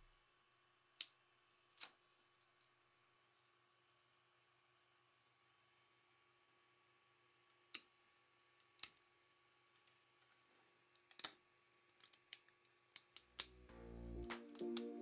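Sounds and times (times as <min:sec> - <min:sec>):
music: 0:13.4 - 0:15.0.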